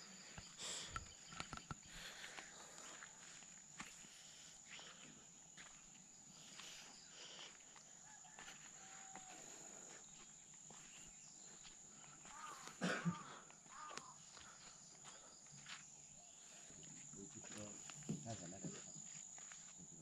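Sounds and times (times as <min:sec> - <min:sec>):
bird chirps: 0:00.0 - 0:03.4
insect drone: 0:00.0 - 0:20.0
animal call: 0:12.1 - 0:14.3.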